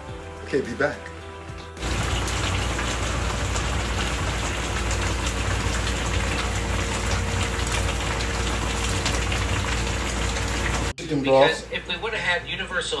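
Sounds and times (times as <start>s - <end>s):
gas burner rumble: 1.8s - 10.9s
liquid bubbling in roasting tray: 1.8s - 10.9s.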